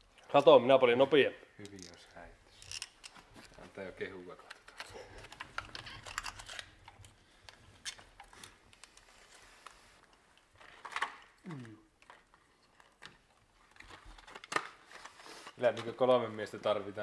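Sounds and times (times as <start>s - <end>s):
short falling vocal sound: 11.4s - 11.8s.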